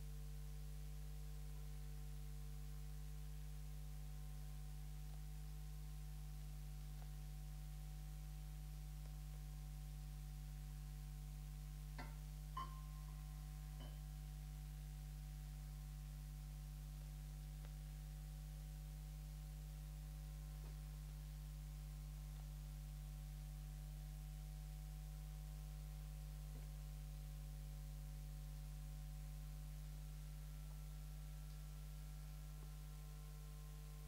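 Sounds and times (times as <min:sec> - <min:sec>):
electrical hum: 0:00.0 - 0:34.0
faint high tones: 0:12.0 - 0:14.1.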